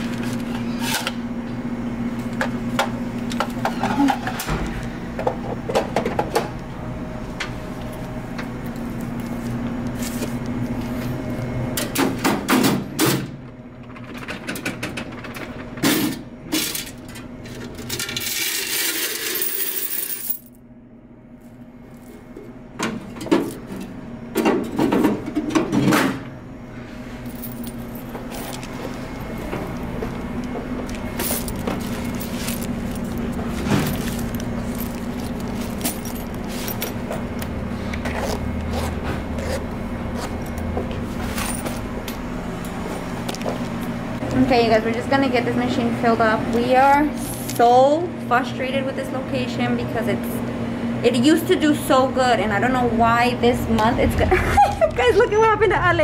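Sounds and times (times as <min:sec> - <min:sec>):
steady low hum: 0:00.0 - 0:18.4, 0:19.4 - 0:56.0
coins clattering and jingling: 0:18.0 - 0:20.6, 0:27.3 - 0:28.7, 0:31.2 - 0:37.0.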